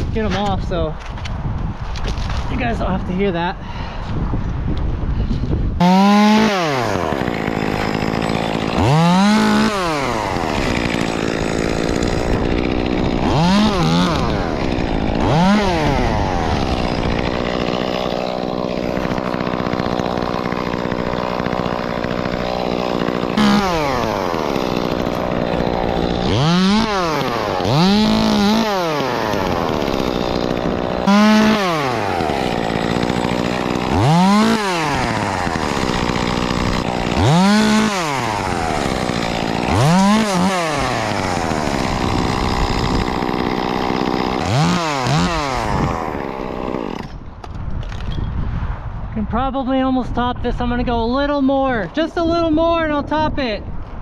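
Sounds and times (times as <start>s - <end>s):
chainsaw idling and revving: 5.8s - 47.4s.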